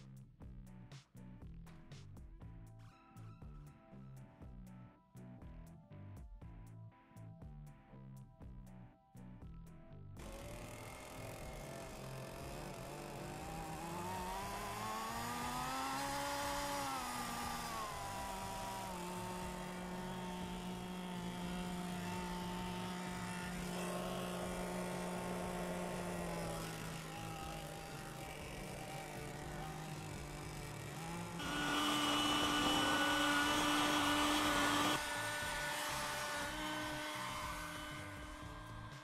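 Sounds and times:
model airplane engine running: 0:10.2 - 0:39.0.

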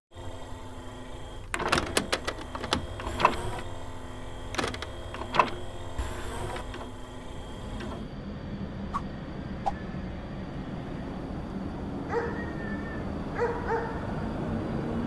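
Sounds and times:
short motor whirring: 0:00.1 - 0:08.1
steady low hum: 0:00.1 - 0:15.0
sharp metallic clicks: 0:04.4 - 0:08.1.

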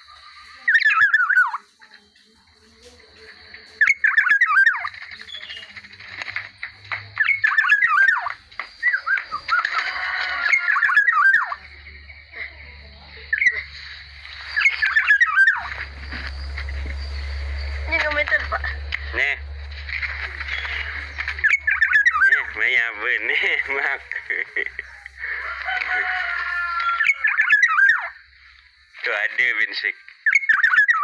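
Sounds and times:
bird warbling whistled calls: 0:00.0 - 0:01.6, 0:03.8 - 0:05.8, 0:07.2 - 0:09.8, 0:10.4 - 0:11.6, 0:13.3 - 0:18.6, 0:20.5 - 0:22.6, 0:26.5 - 0:28.3, 0:30.2 - 0:31.0.

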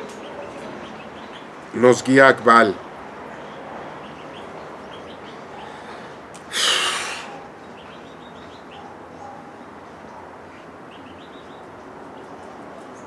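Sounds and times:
loud breath: 0:05.6 - 0:07.4.

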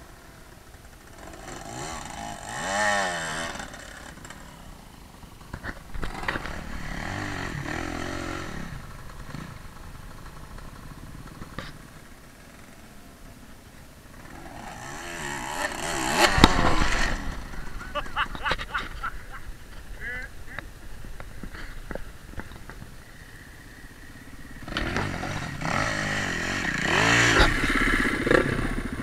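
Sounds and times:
dirt bike engines revving: 0:00.0 - 0:29.0
bikes knocking over rough ground: 0:05.4 - 0:06.7.

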